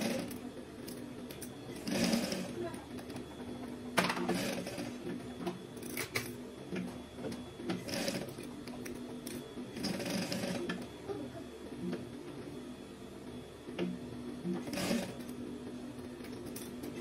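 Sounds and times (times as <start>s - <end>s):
sewing machine stitching: 0.0s - 0.4s, 1.8s - 2.7s, 4.2s - 5.0s, 7.7s - 8.4s, 9.8s - 10.8s, 14.6s - 15.3s.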